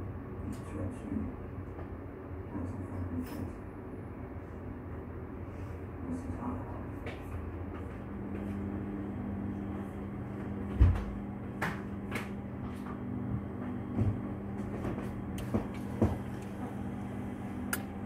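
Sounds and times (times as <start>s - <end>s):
low hum: 7.6s - 18.0s
knocks and thumps: 13.7s - 16.4s.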